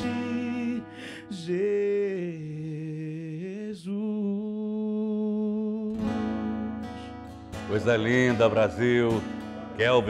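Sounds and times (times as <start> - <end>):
man singing long held notes: 0.0 - 6.0
singer breathing in: 0.8 - 1.3, 6.8 - 7.3.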